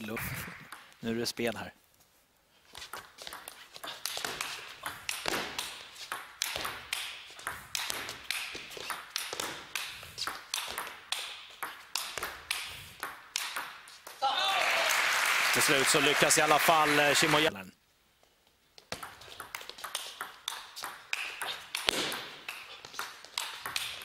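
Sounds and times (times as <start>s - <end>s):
table tennis ball clicking: 2.9s - 13.8s.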